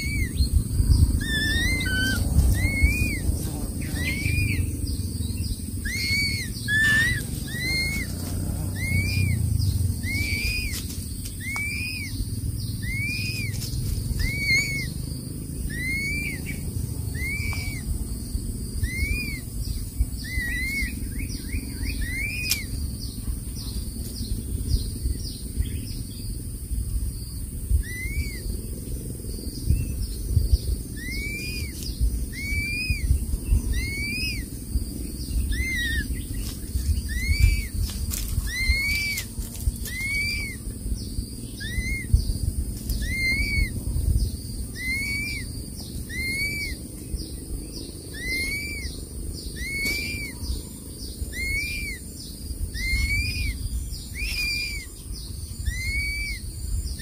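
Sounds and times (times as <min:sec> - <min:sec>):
eagle chick peeping calls: 0:00.0 - 0:26.0, 0:27.4 - 0:29.0, 0:29.6 - 0:57.0
low rumble: 0:00.0 - 0:57.0.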